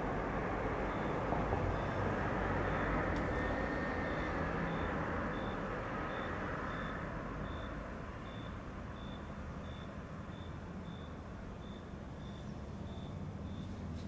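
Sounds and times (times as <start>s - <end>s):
passing vehicle rumble: 0.0s - 14.0s
short high-pitched beeps: 2.7s - 13.7s.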